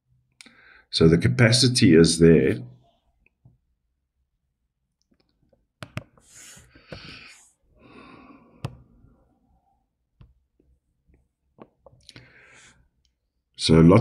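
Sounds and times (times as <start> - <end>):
faint breathing: 0.4 - 0.9, 6.2 - 9.8, 12.0 - 13.0.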